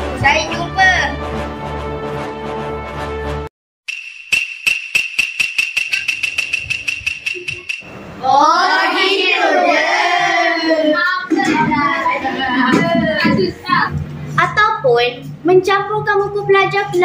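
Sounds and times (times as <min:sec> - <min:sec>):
rapid even ticking: 0:03.9 - 0:07.9
high ringing tone: 0:03.9 - 0:08.0
children calling sing-song: 0:07.3 - 0:13.9.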